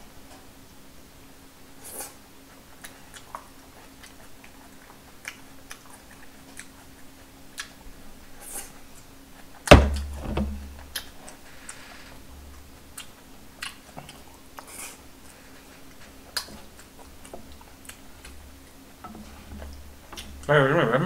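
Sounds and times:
chewing: 0:01.9 - 0:09.6, 0:10.8 - 0:20.5
plastic bowl set down on table: 0:09.7 - 0:10.6.

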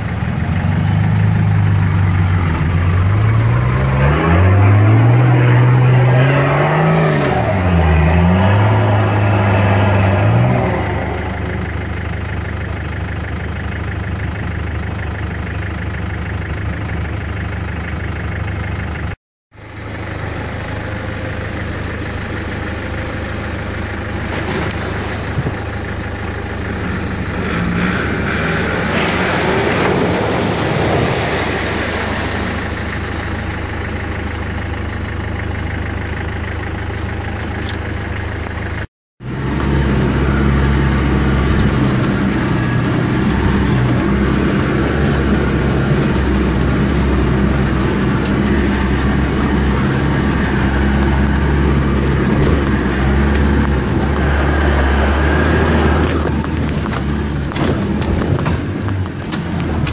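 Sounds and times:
car engine revving under load: 0:39.2 - 0:59.9.

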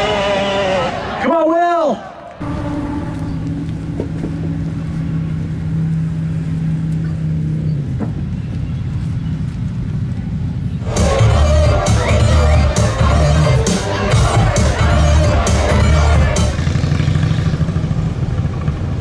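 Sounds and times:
steady hum: 0:02.4 - 0:08.3
motorcycle engine idling: 0:02.4 - 0:10.9, 0:16.0 - 0:19.0
loud music: 0:10.8 - 0:17.0.

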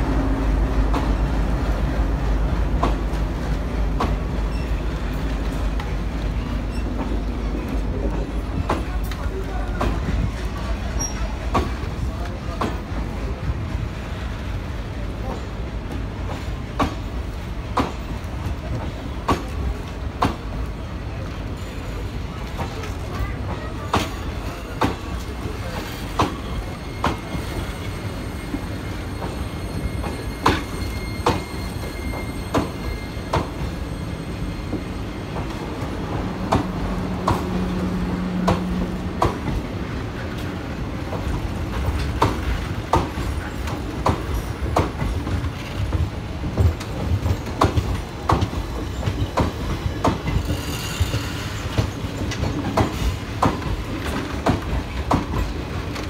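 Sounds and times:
low rumble of rolling coaches: 0:00.0 - 0:56.0
train wheels clacking over joints: 0:21.4 - 0:56.0.

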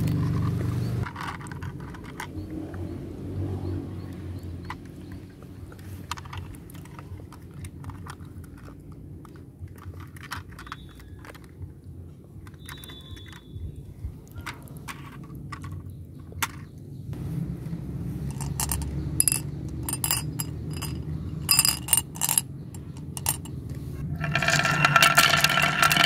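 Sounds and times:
plastic toy truck clicks and knocks: 0:00.0 - 0:02.6, 0:04.6 - 0:11.6, 0:12.4 - 0:16.8.

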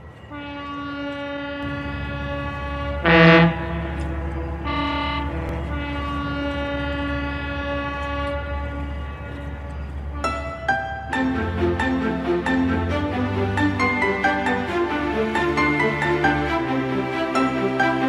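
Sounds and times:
horn-like tone: 0:00.3 - 0:11.0
low rumble: 0:01.6 - 0:10.2.

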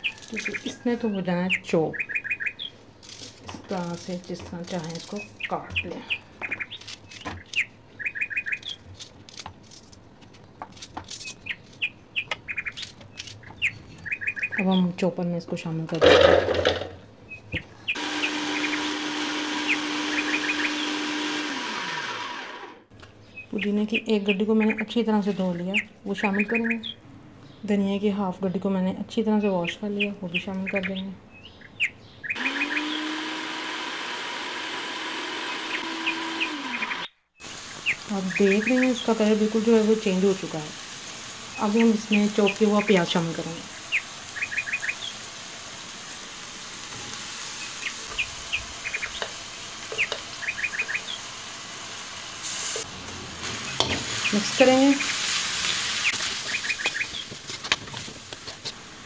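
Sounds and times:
knife cutting onion: 0:03.0 - 0:05.9
small bird chirping: 0:05.0 - 0:08.8, 0:11.2 - 0:15.0, 0:19.7 - 0:20.9, 0:29.4 - 0:33.0, 0:43.9 - 0:45.2, 0:47.6 - 0:51.3, 0:53.6 - 0:57.3
food processor motor running: 0:18.0 - 0:22.9, 0:32.4 - 0:37.1.

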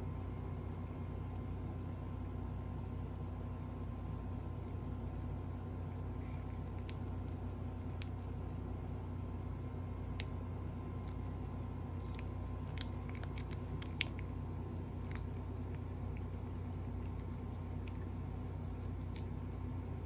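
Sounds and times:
steady low hum: 0:00.0 - 0:20.0
cat licking with wet clicks: 0:00.3 - 0:08.7.

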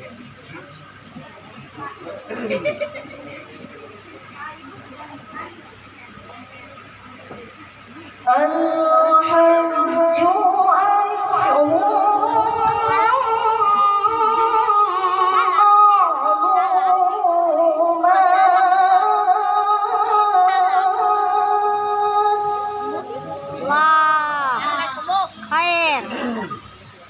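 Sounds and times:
boy reciting melodically into microphone: 0:08.2 - 0:27.0.

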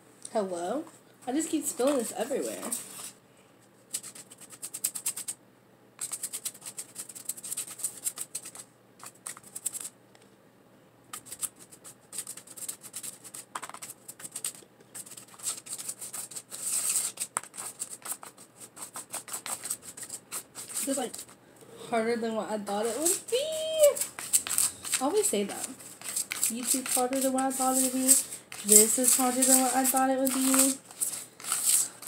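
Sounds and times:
plastic spoon scraping paper bowl: 0:11.2 - 0:21.4, 0:22.7 - 0:32.0.

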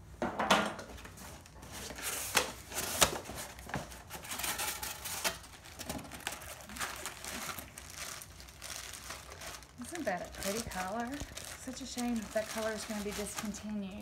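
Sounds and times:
cardboard rustling and scraping: 0:00.9 - 0:08.2.

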